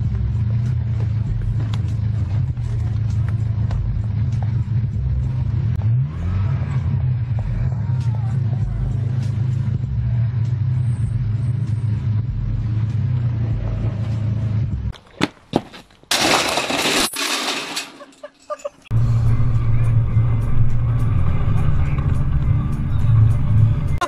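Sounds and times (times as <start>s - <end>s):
loud crash: 16.1s - 18.0s.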